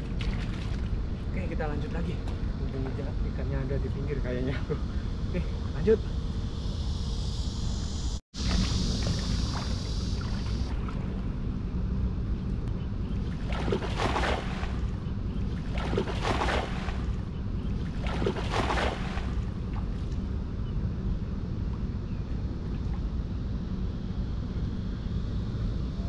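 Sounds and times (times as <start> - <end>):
wading through shallow water: 0.0 - 1.3, 8.4 - 11.7, 13.1 - 20.2
wind rumbling on microphone: 0.0 - 26.0.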